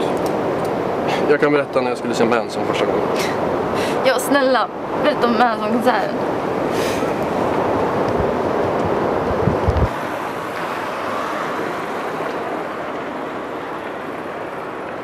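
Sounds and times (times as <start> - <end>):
road traffic hiss: 0.0 - 15.0
wind buffeting microphone: 3.3 - 15.0.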